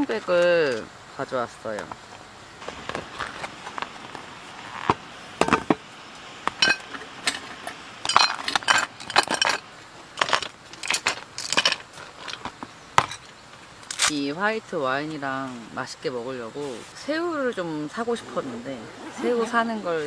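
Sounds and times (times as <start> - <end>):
rustling: 1.8 - 14.2
glass clinking and knocking: 5.4 - 5.8, 6.6 - 9.6.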